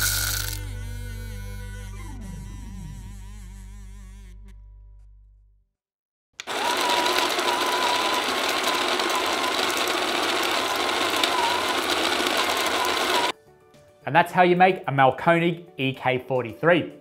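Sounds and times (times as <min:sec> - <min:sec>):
coffee grinder grinding beans: 0:00.0 - 0:00.7, 0:06.4 - 0:13.3.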